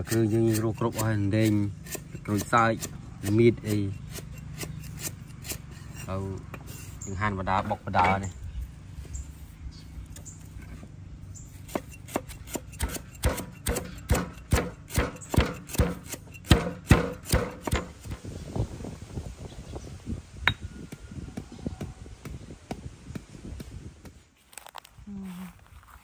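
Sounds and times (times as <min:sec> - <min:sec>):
pounding ingredients by hand: 0:11.6 - 0:18.2.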